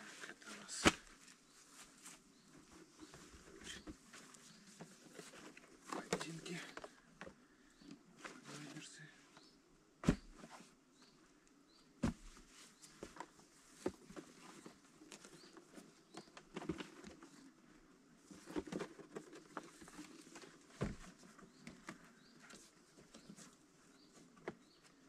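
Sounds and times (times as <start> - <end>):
rustling: 0.0 - 7.0.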